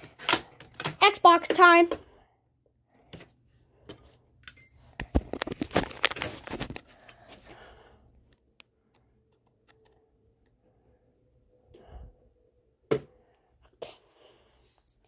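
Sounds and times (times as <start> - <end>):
disc case clicks and rattles: 5.0 - 6.9.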